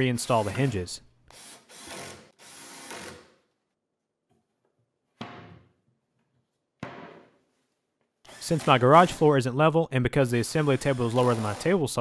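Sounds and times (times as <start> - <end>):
cordless drill driving screws: 8.3 - 9.2, 10.6 - 11.7.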